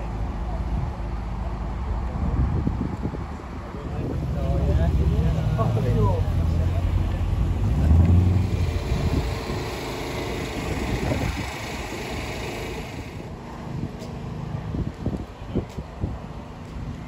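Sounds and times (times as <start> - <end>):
car engine running: 4.1 - 13.4.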